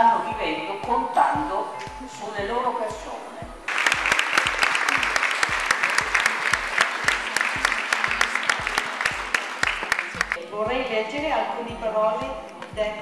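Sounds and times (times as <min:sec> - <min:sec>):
audience applauding: 0:03.7 - 0:10.4.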